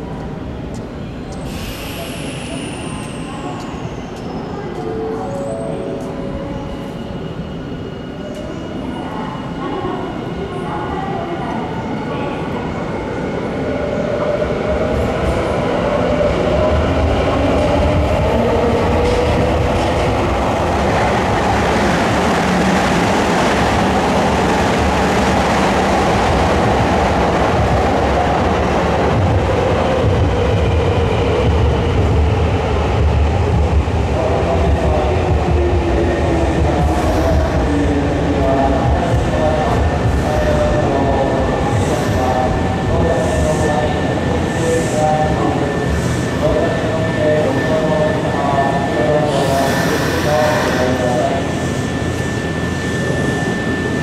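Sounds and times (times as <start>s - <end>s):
train wheels rumbling on rails: 14.2s - 48.1s.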